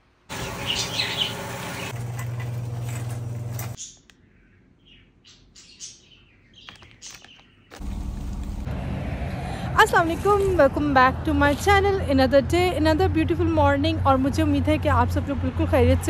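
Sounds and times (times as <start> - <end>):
faint bird chirps: 3.8 - 7.7.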